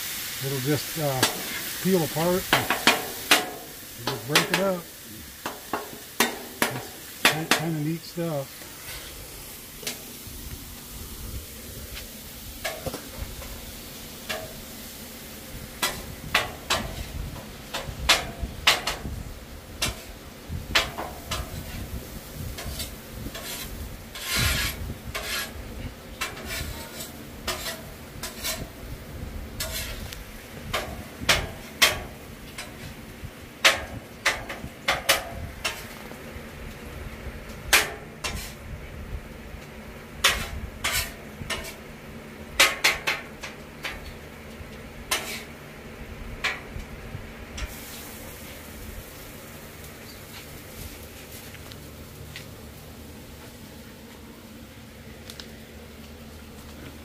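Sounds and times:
meat sizzling: 0:00.0 - 0:34.8, 0:47.7 - 0:53.8
metal spatulas clacking on griddle: 0:02.5 - 0:04.7, 0:05.4 - 0:07.7, 0:15.8 - 0:17.0, 0:17.7 - 0:19.0, 0:20.7 - 0:21.5, 0:26.2 - 0:28.6, 0:30.7 - 0:32.8, 0:33.6 - 0:35.9, 0:37.7 - 0:38.5, 0:40.2 - 0:41.8, 0:42.6 - 0:44.2, 0:45.1 - 0:45.5.

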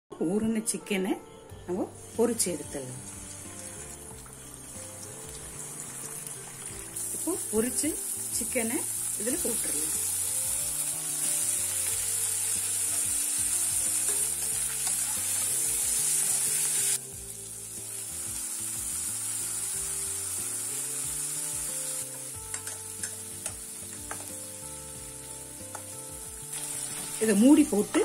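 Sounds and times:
food sizzling in a pan: 0:01.9 - 0:28.0
spoon tapping: 0:22.5 - 0:24.3.

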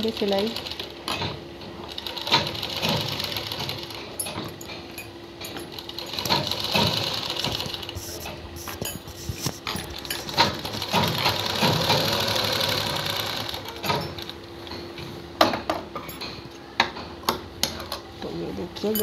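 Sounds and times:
sewing machine stitching: 0:01.8 - 0:04.1, 0:05.6 - 0:08.3, 0:09.2 - 0:14.4.

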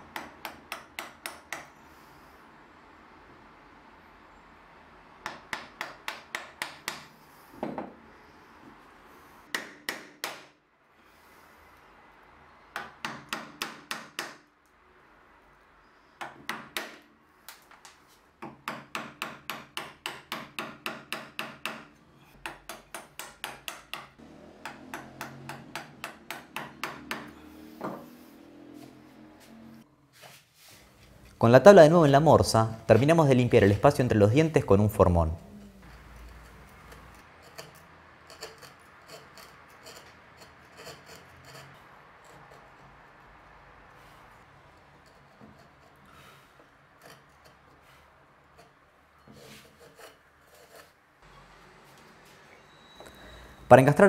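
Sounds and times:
mallet striking a chisel: 0:00.1 - 0:01.8, 0:05.2 - 0:07.8, 0:09.5 - 0:10.5, 0:12.8 - 0:14.4, 0:16.2 - 0:17.0, 0:18.4 - 0:27.4.

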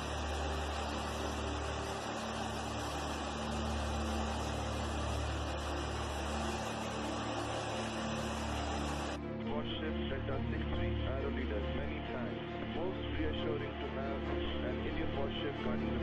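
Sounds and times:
aircraft engine and airflow noise: 0:00.0 - 0:09.2.

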